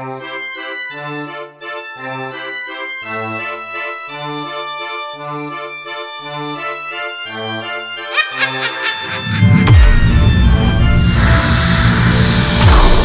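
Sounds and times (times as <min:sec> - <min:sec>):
bass notes: 0:09.2 - 0:13.0.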